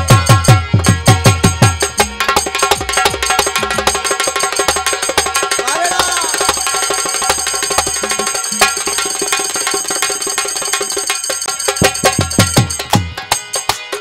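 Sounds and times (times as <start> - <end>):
fast dense percussion strokes: 0.0 - 14.0
steady held tones: 3.6 - 14.0.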